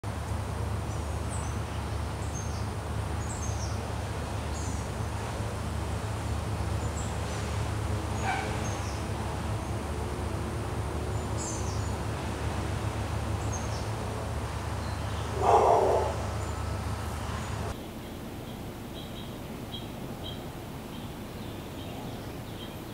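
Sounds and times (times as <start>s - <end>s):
small birds chirping: 0.9s - 4.9s, 11.1s - 12.0s, 13.3s - 22.9s
dog barking loudly: 8.2s - 8.7s, 15.3s - 16.4s.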